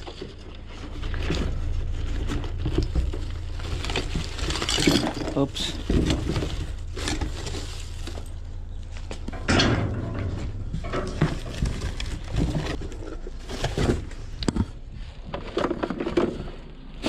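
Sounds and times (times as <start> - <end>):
plastic wrapping crinkling: 0.0 - 9.3, 10.7 - 14.4
steady low rumble: 0.3 - 15.5
cardboard flaps scraping: 10.6 - 16.5.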